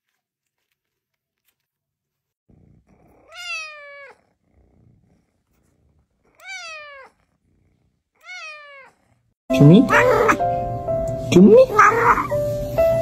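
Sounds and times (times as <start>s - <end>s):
kitten meowing: 2.9s - 4.3s, 6.3s - 7.2s, 8.2s - 9.0s, 9.8s - 10.5s.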